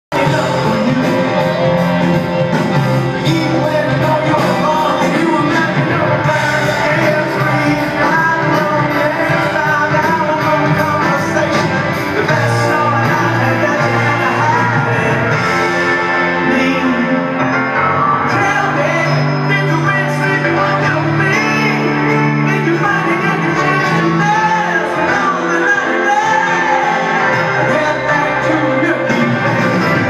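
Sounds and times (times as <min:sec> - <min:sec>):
lead singer singing: 0:00.1 - 0:30.0
live rock band playing: 0:00.1 - 0:30.0.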